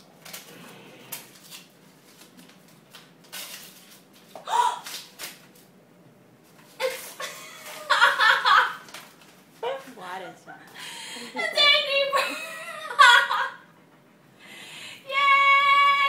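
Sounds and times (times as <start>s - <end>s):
wrapping paper tearing: 0.2s - 5.7s
person exclaiming: 15.1s - 16.0s.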